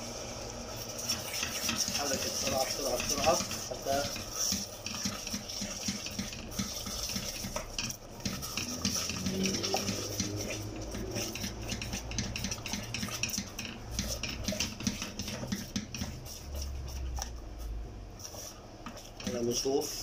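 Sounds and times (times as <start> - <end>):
wooden spoon scraping saucepan: 0.8 - 20.0.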